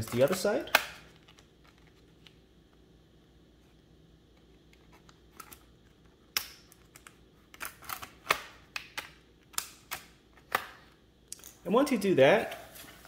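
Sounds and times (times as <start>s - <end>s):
plastic clips popping loose: 0.0s - 1.4s.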